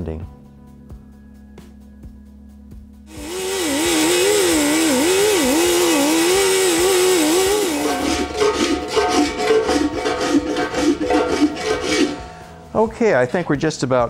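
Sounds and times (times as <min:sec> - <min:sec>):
die grinder whining: 0:03.1 - 0:12.4
file scraping metal: 0:03.1 - 0:12.5.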